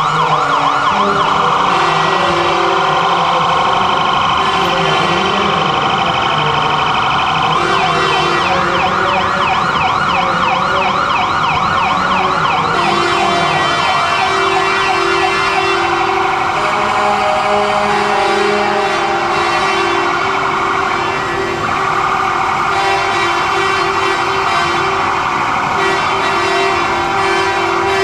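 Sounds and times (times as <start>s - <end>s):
electronic siren yelping: 0.0s - 28.0s
steady held tones: 0.8s - 16.6s.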